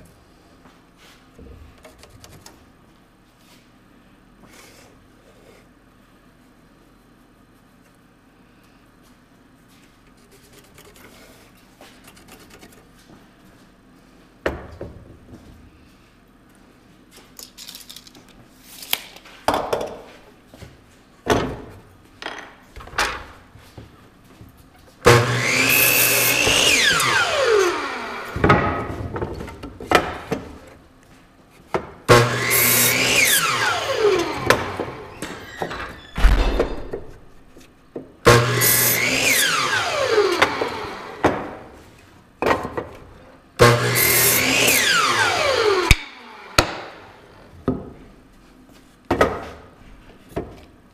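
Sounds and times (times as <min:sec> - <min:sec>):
miter saw cutting wood: 0:25.1 - 0:28.5, 0:32.1 - 0:35.4, 0:38.3 - 0:41.4, 0:43.6 - 0:47.2.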